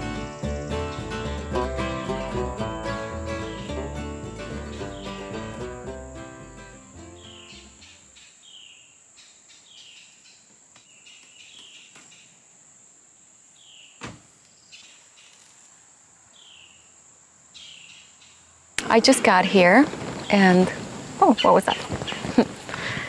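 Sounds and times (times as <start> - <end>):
music: 0.0 - 8.0
insects buzzing: 0.0 - 23.0
thump: 14.0 - 14.3.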